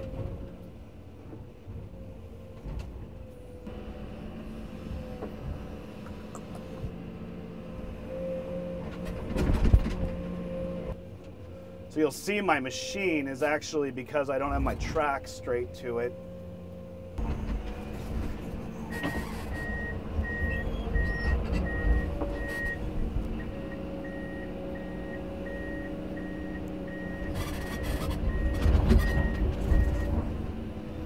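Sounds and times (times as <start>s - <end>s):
diesel engine running: 0.0s - 31.0s
heavy low rumble: 13.4s - 16.2s
excavator travel alarm beeping: 18.9s - 22.8s, 23.4s - 30.1s.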